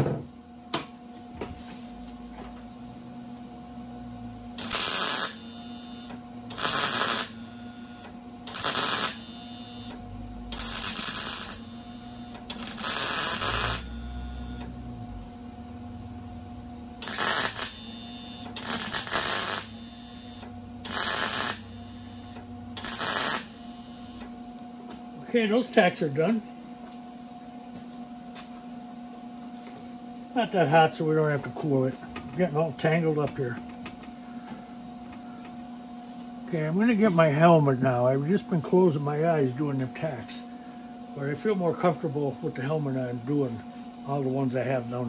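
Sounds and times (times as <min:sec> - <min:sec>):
steady hum: 0:00.0 - 0:45.0
welding arc crackle: 0:04.6 - 0:14.6, 0:17.0 - 0:24.2.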